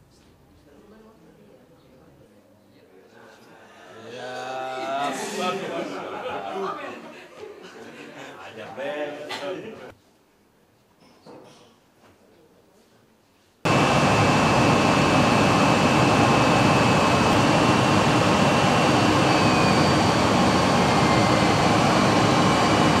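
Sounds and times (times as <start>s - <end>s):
aircraft engine noise: 13.7s - 23.0s
faint high whine: 13.7s - 23.0s.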